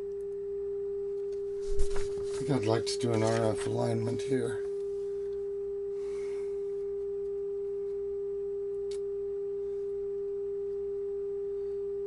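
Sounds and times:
faint hum: 0.0 - 12.0.

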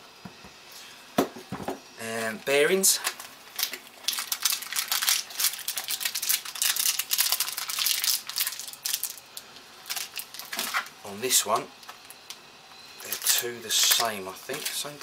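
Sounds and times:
gloved hands crackling and rustling: 3.0 - 12.4, 13.0 - 15.0.

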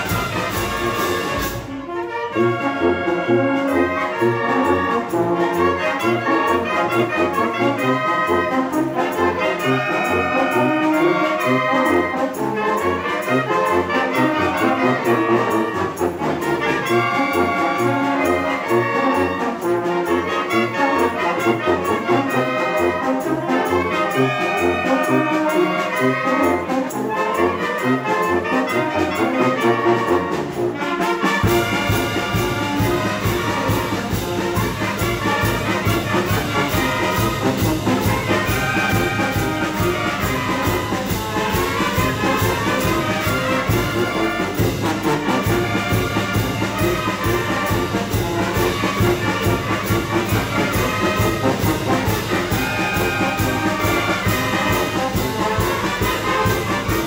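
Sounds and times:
clarinets and trumpets melody: 0.0 - 57.0.

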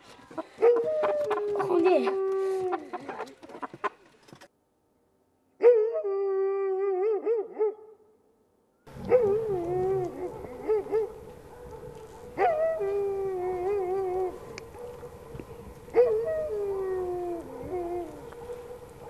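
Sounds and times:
dog howling: 8.9 - 18.8.

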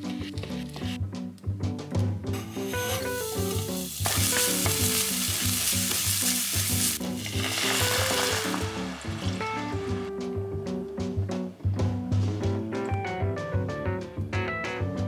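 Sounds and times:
background music with melodic beat: 0.0 - 15.0
food sizzling in a pan: 2.4 - 10.1.

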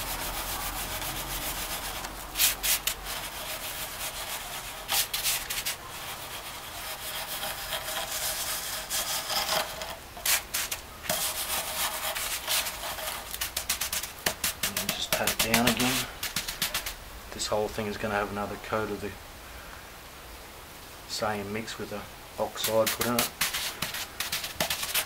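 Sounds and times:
stick scraping wet concrete: 0.0 - 17.0, 22.5 - 25.0.

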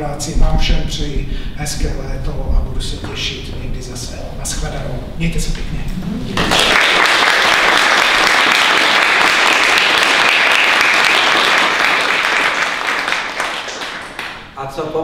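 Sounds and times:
small audience clapping: 6.3 - 14.5.

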